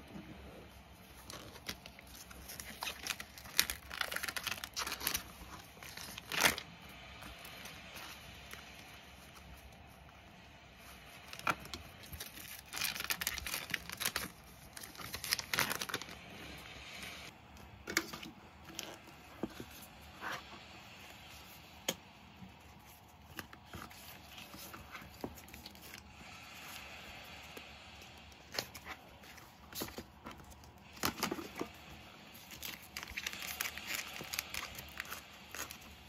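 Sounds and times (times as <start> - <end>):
paper and plastic rustling: 1.0 - 9.6, 10.8 - 16.3, 22.6 - 26.9, 28.4 - 36.0.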